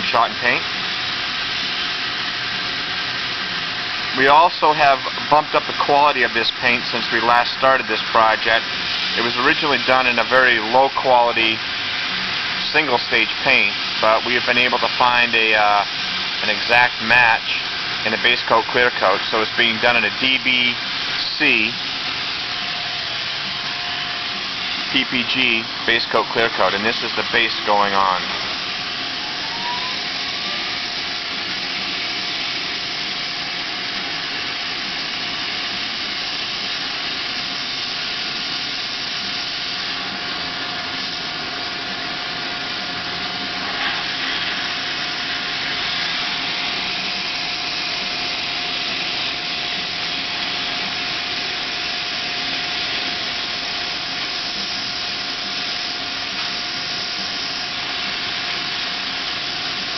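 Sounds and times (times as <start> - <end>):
air spray gun hissing: 0.0 - 59.9
steady whine: 0.0 - 59.9
ventilation air rushing: 0.0 - 59.9.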